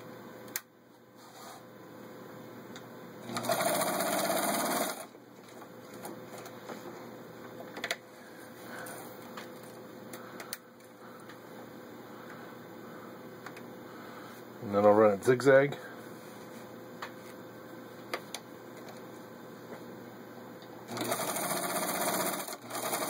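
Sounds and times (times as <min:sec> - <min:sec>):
sewing machine stitching: 0:03.2 - 0:05.1, 0:20.9 - 0:23.0.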